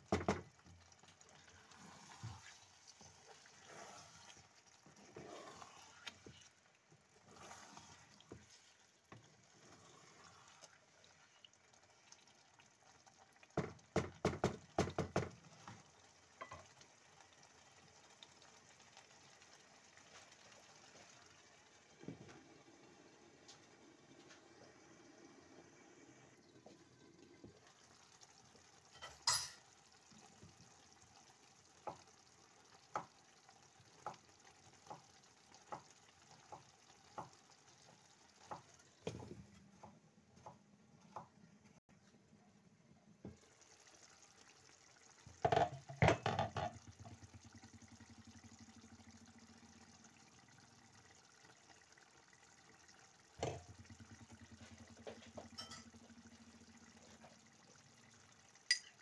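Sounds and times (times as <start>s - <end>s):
stew simmering with small pops: 0.0s - 59.0s
lid and pot clattering: 45.4s - 46.8s.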